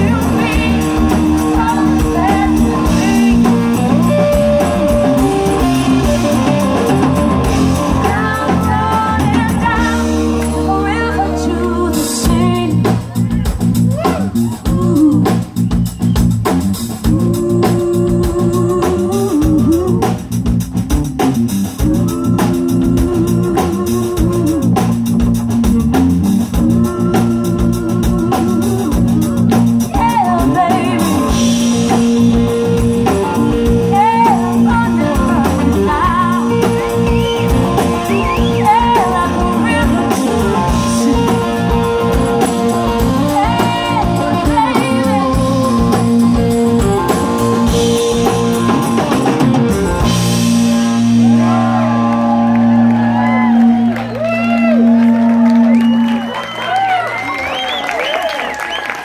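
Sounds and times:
women singing: 0.0s - 4.0s, 7.8s - 12.9s, 17.0s - 20.2s, 21.8s - 24.9s, 33.8s - 37.0s, 38.1s - 42.2s, 43.0s - 46.1s
drum kit: 0.0s - 58.2s
electric bass: 0.0s - 58.2s.

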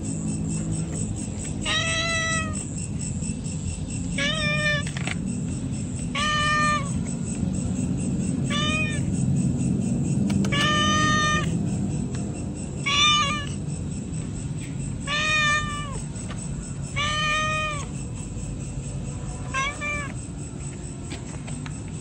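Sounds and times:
cat meowing: 1.6s - 2.7s, 4.2s - 5.0s, 6.1s - 7.0s, 8.4s - 9.1s, 10.4s - 11.5s, 12.8s - 13.6s, 15.0s - 16.0s, 16.9s - 17.9s, 19.4s - 20.2s.

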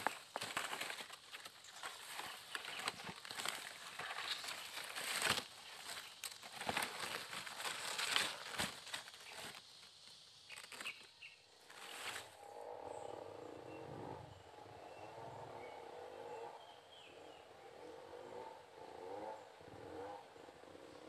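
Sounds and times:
stems snapping: 0.0s - 9.8s, 10.5s - 11.1s
leaves rustling and crackling: 0.0s - 12.5s
steady outdoor ambience: 0.0s - 21.0s.

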